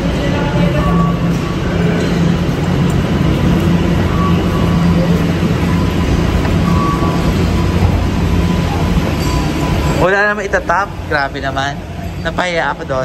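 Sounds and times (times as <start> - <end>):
transit vehicle drone: 0.0 - 13.0.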